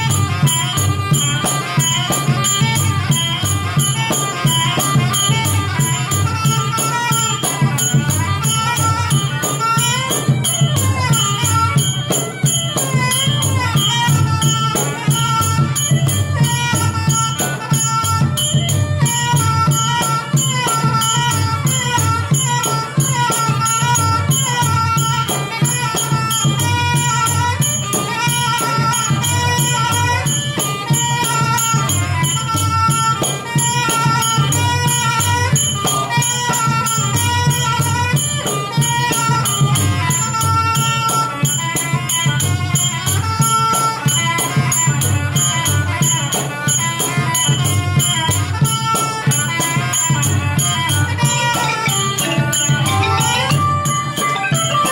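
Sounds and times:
drums: 45.0s - 54.9s
oboe gliding melody: 51.1s - 54.9s
xylophones: 51.3s - 54.9s.

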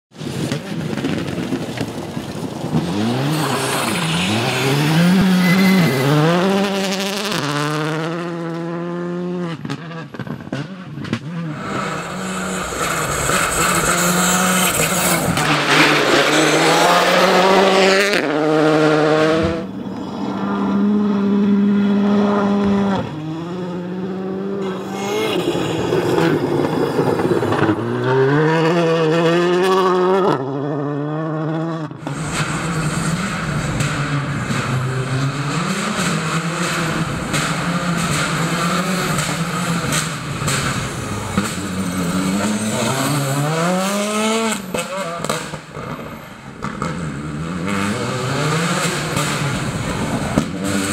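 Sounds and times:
gravel under tyres: 0.1s - 18.4s, 25.1s - 31.2s
rally car engine revving: 0.2s - 50.9s.

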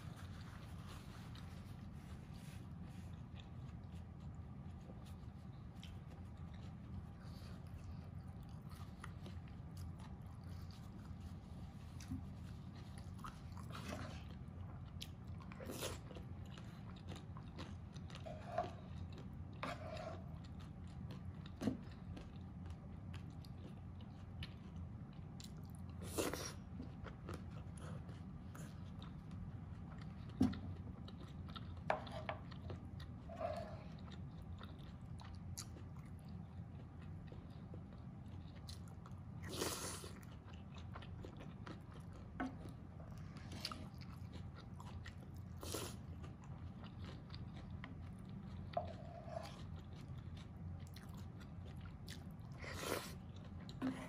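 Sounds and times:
person chewing food: 0.0s - 54.0s
wooden spoon scraping pan: 19.6s - 20.2s.

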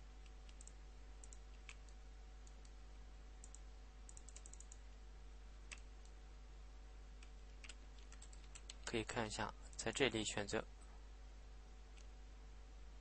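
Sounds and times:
mouse and keyboard clicks: 3.4s - 4.8s.

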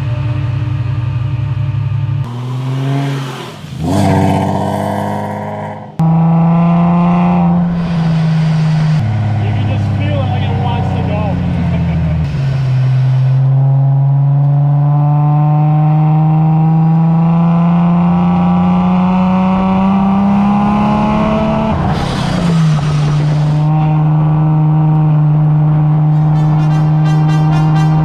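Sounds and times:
kart engine revving: 2.2s - 28.0s.

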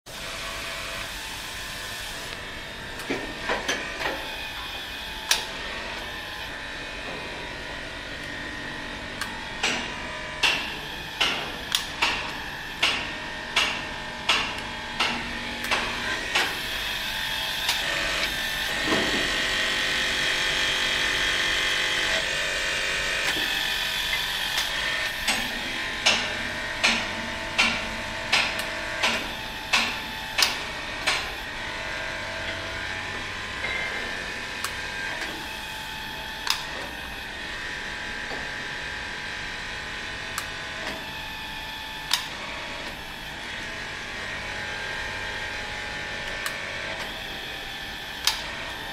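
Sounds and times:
hydraulic pump droning: 0.1s - 48.9s.

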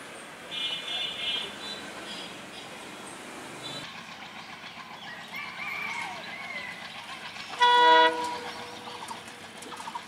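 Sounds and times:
diesel locomotive horn blast: 7.6s - 8.7s.

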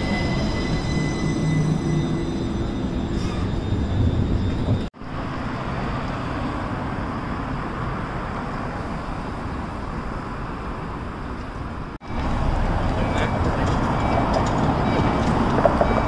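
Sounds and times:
passing cars traffic noise: 5.0s - 16.0s.

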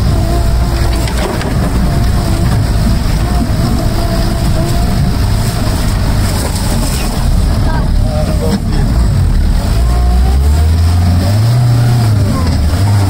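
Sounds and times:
off-road vehicle engine rumble: 0.0s - 13.0s.

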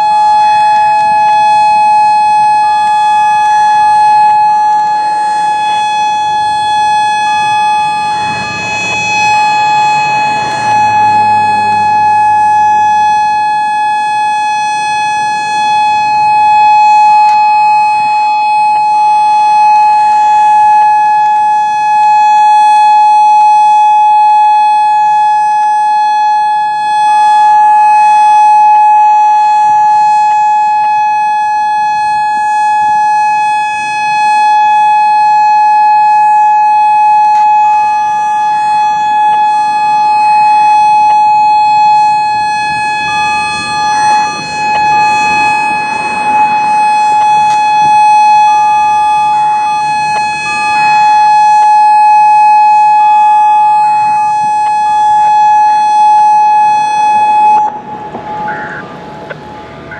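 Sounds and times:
electronic siren steady tone: 0.0s - 59.9s.

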